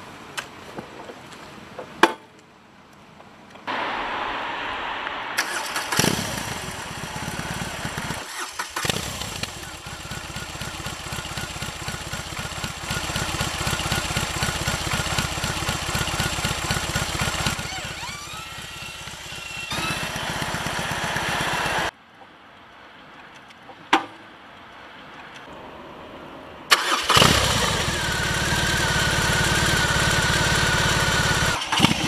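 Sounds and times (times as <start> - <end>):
motorcycle engine starting and idling: 5.4 - 21.9, 26.7 - 32.0.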